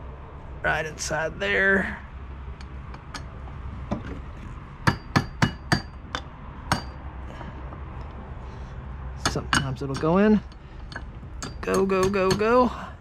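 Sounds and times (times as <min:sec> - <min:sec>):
hammer tapping metal: 0:02.6 - 0:04.2, 0:04.8 - 0:07.0, 0:09.2 - 0:12.7.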